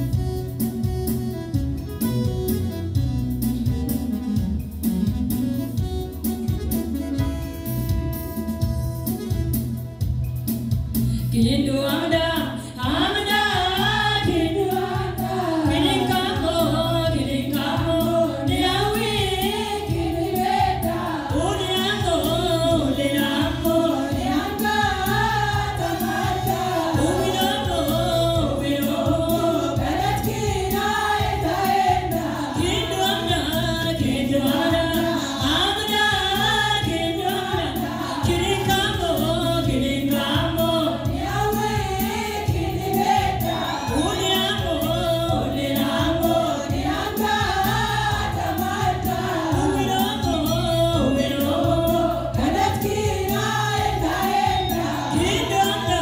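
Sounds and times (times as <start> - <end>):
women's choir singing a hymn: 12.0 - 56.0.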